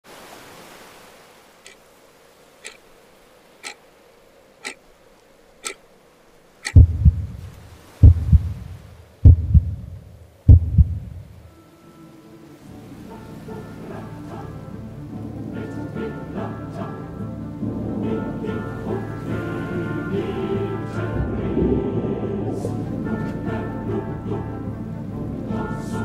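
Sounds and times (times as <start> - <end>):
clock ticking: 6.6 - 8.6, 9.3 - 9.8, 10.5 - 11.1
heartbeat thumps: 6.7 - 11.4.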